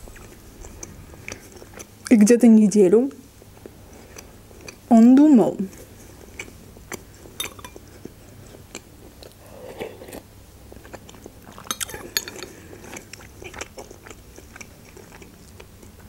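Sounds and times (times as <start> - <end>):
chewing and mouth sounds: 0.0 - 2.2, 3.4 - 4.9, 5.6 - 16.0
metal spoon clinking in bowl: 7.4 - 7.8, 11.7 - 12.5.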